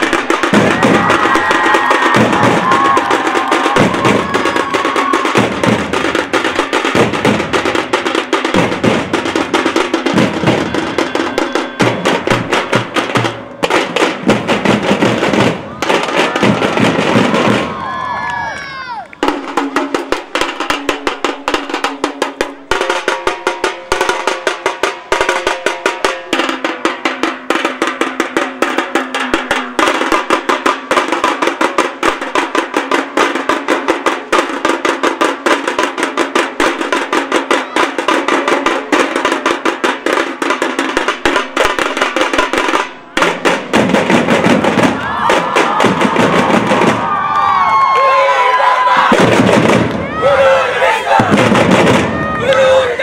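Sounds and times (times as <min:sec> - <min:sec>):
drum ensemble playing fast rhythm: 0:00.0 - 0:18.0, 0:18.7 - 0:47.9, 0:48.9 - 0:53.0.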